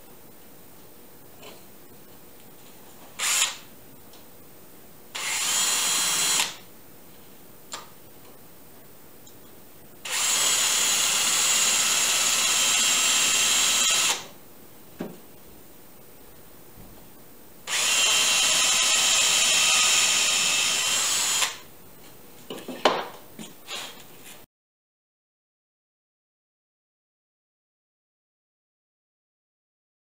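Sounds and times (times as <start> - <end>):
cordless drill into wood: 3.2 - 3.6, 5.2 - 6.6, 10.0 - 14.3, 17.7 - 21.6.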